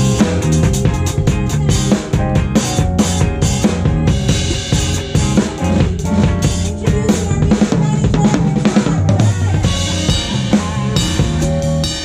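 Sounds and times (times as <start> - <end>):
drum kit playing: 0.0 - 12.0
electric bass notes: 0.0 - 12.0.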